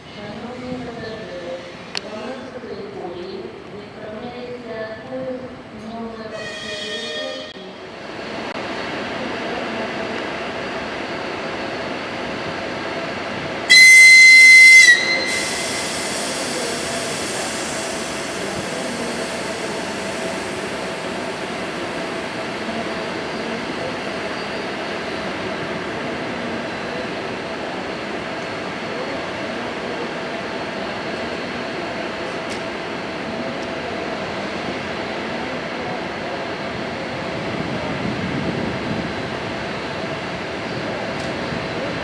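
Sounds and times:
locomotive machinery humming: 0:06.2 - 0:42.0
locomotive whistle blast: 0:06.4 - 0:07.6, 0:13.7 - 0:16.0.

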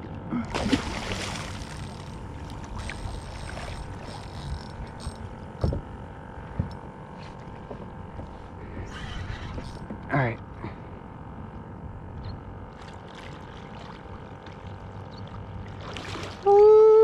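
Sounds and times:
water lapping: 0:00.0 - 0:05.6, 0:12.7 - 0:17.0
fish splashing in water: 0:00.5 - 0:04.1, 0:12.8 - 0:16.6.

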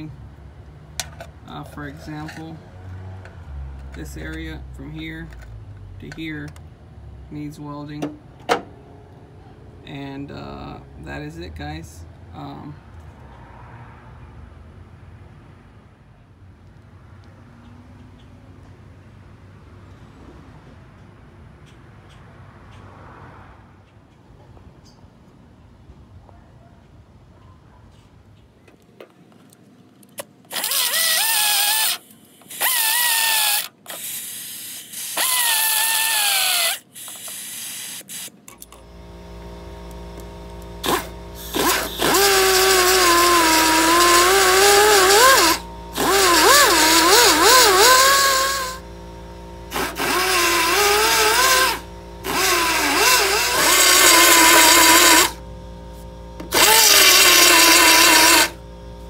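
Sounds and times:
belt file grinding metal: 0:40.8 - 0:48.8, 0:49.7 - 0:55.4, 0:56.4 - 0:58.6.

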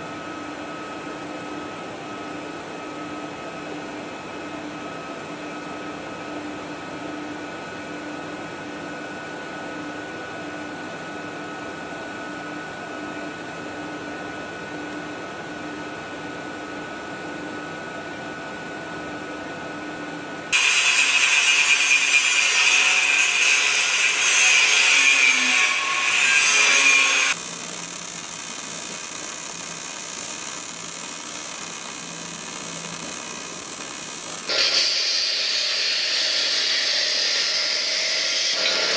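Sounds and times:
harsh loud power tool: 0:20.5 - 0:38.9
steady machine hum: 0:25.7 - 0:37.8.

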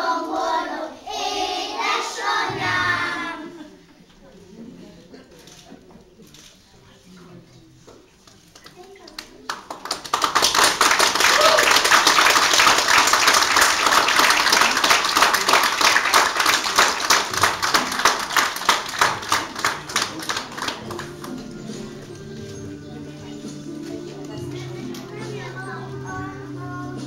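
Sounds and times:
audience applauding: 0:08.8 - 0:21.4.

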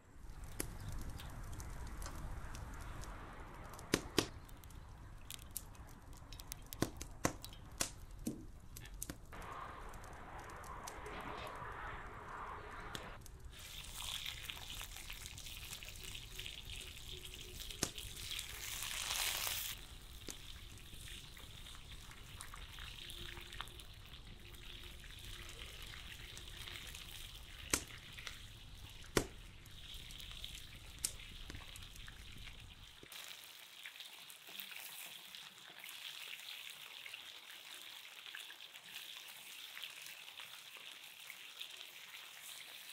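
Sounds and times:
chicken sizzling in hot oil: 0:13.5 - 0:42.9.

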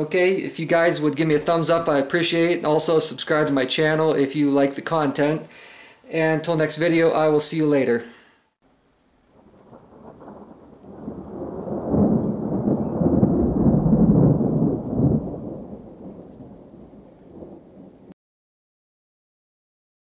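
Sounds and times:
deep rumbling noise: 0:09.6 - 0:18.1.

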